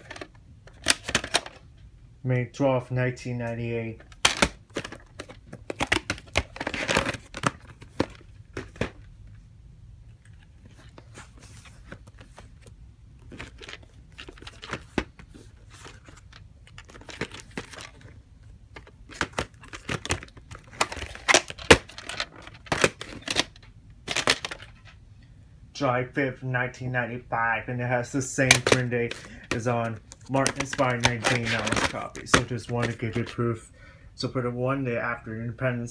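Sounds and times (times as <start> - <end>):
cassettes set down: 0.0 - 1.6, 4.0 - 9.1, 13.2 - 18.1, 18.7 - 25.0, 28.4 - 33.3
plastic cases clicking: 0.0 - 1.6, 4.0 - 9.1, 11.8 - 24.9, 28.4 - 33.4.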